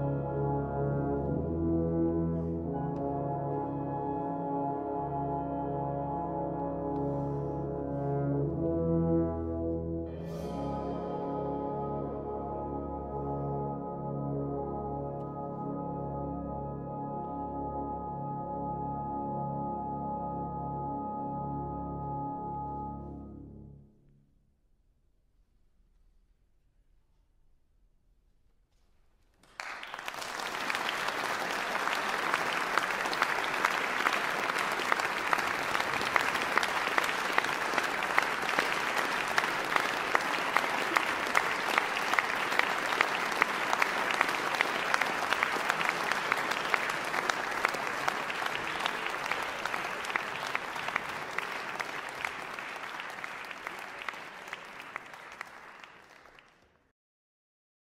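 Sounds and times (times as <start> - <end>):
crowd clapping: 29.4 - 56.9.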